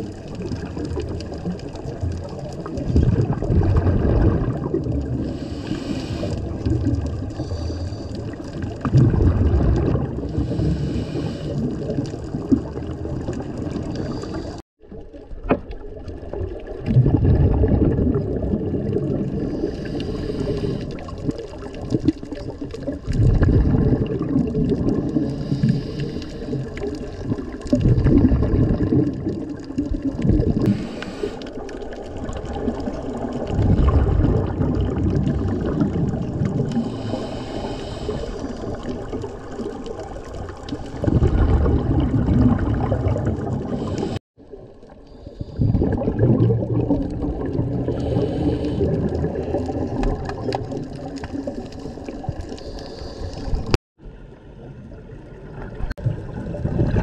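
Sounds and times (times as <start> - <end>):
rumble of exhaled bubbles: 0.0 - 57.0
regulator inhale hiss: 5.2 - 6.6, 7.3 - 8.4, 10.3 - 11.8, 19.4 - 21.1, 25.2 - 26.9, 30.7 - 31.6, 36.7 - 38.8, 43.7 - 44.2, 45.1 - 45.7, 47.9 - 48.9, 52.5 - 53.8.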